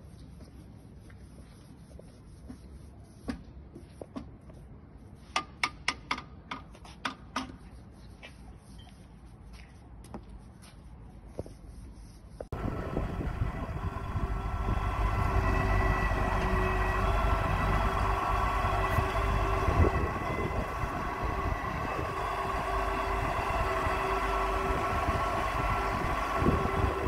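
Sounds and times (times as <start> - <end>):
engine low drone: 12.5 - 27.0
hydraulic whining: 12.6 - 27.0.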